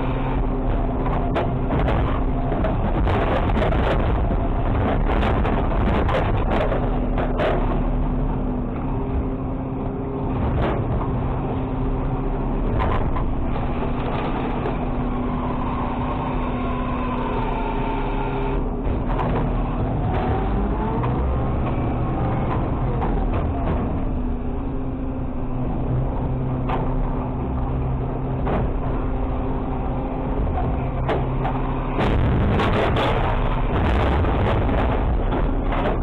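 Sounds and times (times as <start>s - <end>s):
garbage truck diesel engine: 0.0s - 36.0s
hydraulic whine: 10.3s - 36.0s.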